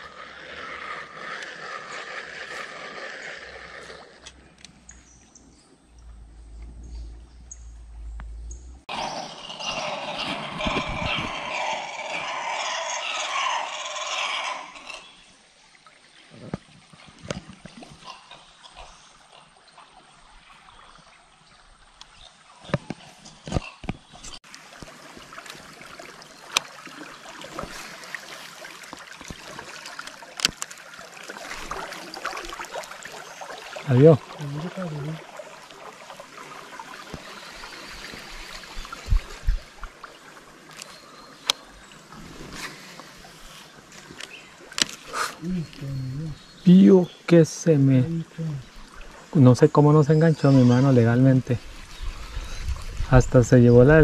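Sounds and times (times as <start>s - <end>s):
faint water: 0.0s - 54.0s
loud harsh animal call: 8.9s - 15.2s
river water rushing: 24.5s - 45.8s.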